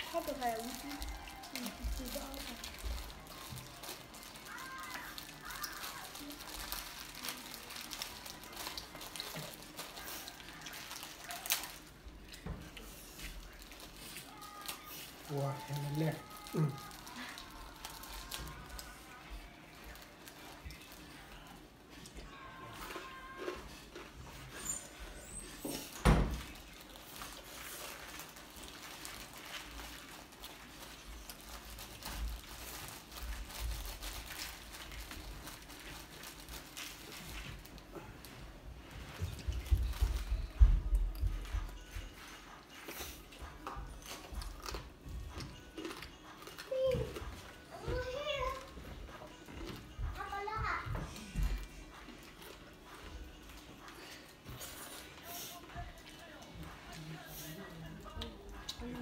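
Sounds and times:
plastic food wrapper rustling: 0:00.0 - 0:21.6, 0:25.8 - 0:50.7
chewing: 0:00.6 - 0:25.9, 0:39.1 - 0:47.7, 0:51.1 - 0:59.0.

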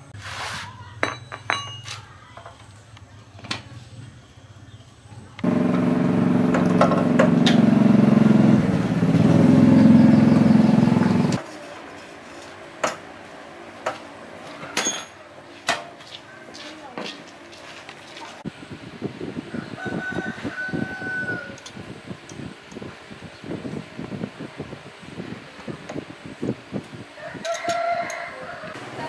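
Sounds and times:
metal tools clinking: 0:01.1 - 0:02.0, 0:14.8 - 0:15.2
engine running: 0:05.4 - 0:11.4.

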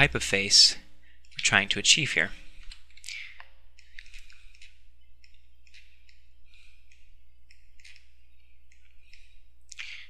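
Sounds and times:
steady low hum: 0:00.0 - 0:10.0
computer mouse clicking: 0:02.6 - 0:09.9.

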